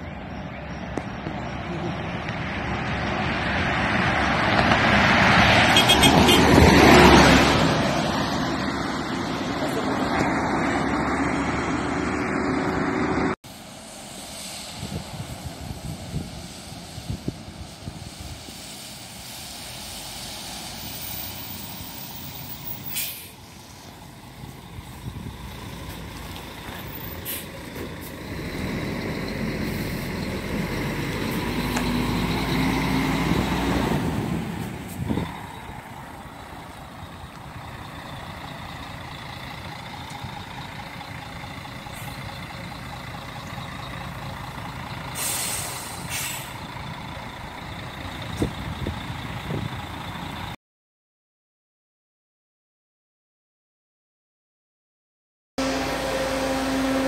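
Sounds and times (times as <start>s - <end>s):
diesel bus engine: 0.0s - 50.6s, 55.6s - 57.0s
road vehicle noise: 0.0s - 50.6s, 55.6s - 57.0s
air brake hiss: 22.8s - 23.4s, 27.2s - 27.6s, 45.1s - 46.6s.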